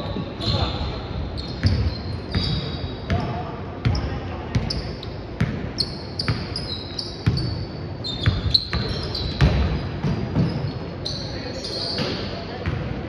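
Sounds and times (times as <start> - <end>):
sneakers squeaking: 0.0 - 13.0
basketball bouncing on court floor: 1.4 - 4.8, 5.4 - 6.6, 8.2 - 10.7.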